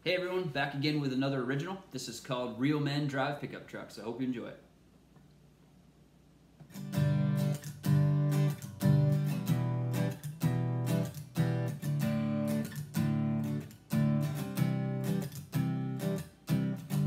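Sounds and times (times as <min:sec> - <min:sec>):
acoustic guitar strumming: 0:06.6 - 0:17.0.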